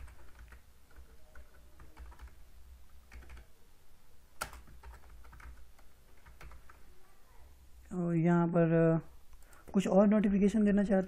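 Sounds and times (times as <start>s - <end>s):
keyboard typing: 0.0s - 3.5s, 4.4s - 6.9s.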